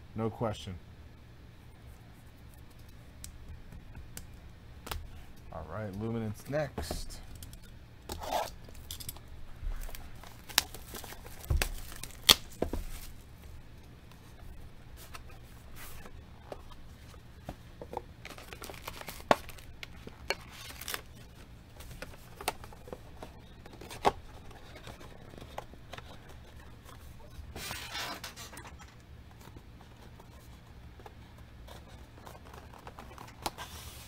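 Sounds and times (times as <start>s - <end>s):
packaging tearing and crinkling: 9.8s - 13.2s, 18.2s - 21.3s
cards and wrappers clicking: 18.2s - 26.6s.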